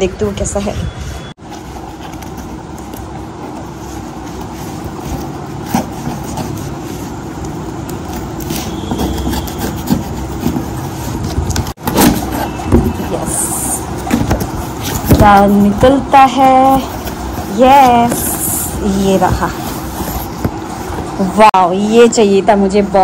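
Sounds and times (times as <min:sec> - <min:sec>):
steady rumbling background noise: 0:00.0 - 0:23.0
knife cutting cardboard: 0:07.9 - 0:12.9.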